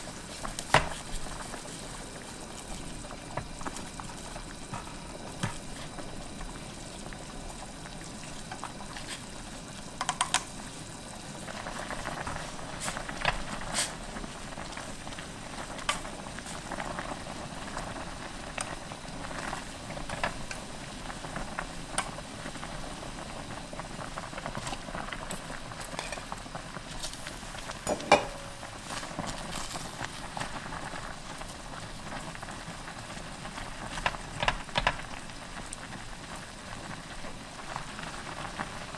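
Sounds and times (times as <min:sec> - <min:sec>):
broth boiling in saucepan: 0:00.0 - 0:38.9
chopsticks tapping a pot: 0:10.0 - 0:10.5, 0:27.8 - 0:28.7.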